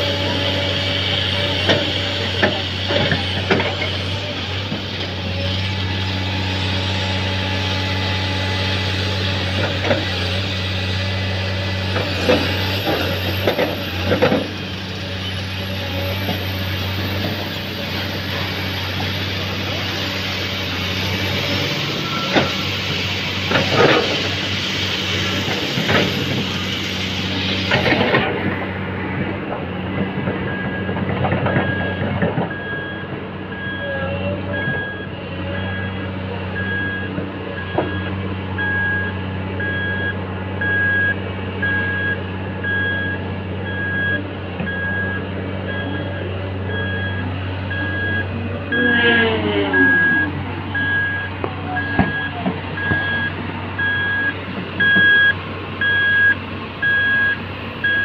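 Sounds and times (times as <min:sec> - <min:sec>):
diesel engine hum: 0:00.0 - 0:58.0
reversing alarm beeping: 0:10.8 - 0:28.0, 0:30.4 - 0:58.0
sliding squeal: 0:47.9 - 0:51.2.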